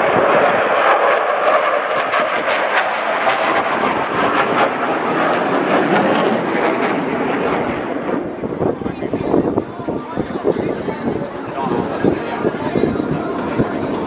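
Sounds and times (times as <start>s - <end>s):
jet engines roaring overhead: 0.0s - 14.0s.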